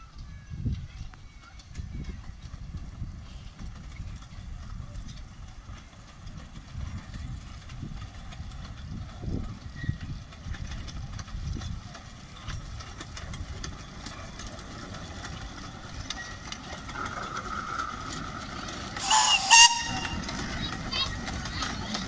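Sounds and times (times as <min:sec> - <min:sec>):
miniature steam locomotive rumbling: 0:00.0 - 0:22.0.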